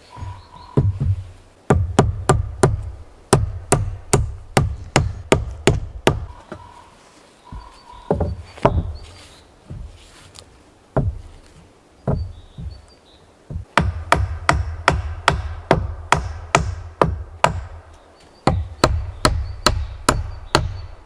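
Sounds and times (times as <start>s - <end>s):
hand tool striking wood: 0.2s - 6.7s, 7.5s - 9.0s, 11.0s - 11.3s, 12.1s - 12.8s, 13.5s - 20.8s.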